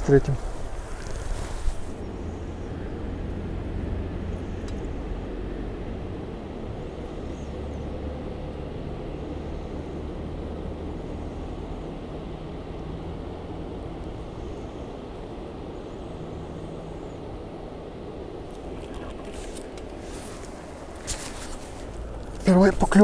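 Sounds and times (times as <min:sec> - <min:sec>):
low motor hum: 0:00.0 - 0:23.0.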